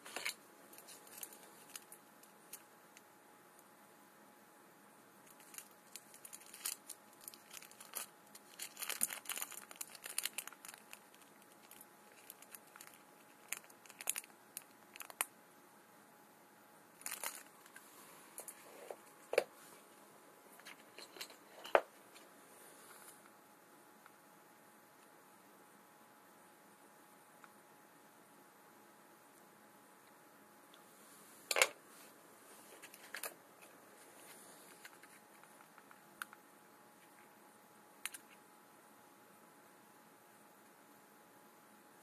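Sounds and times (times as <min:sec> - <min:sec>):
plastic wrapping crinkling and tearing: 0:00.0 - 0:02.6, 0:05.3 - 0:15.3, 0:17.0 - 0:17.8.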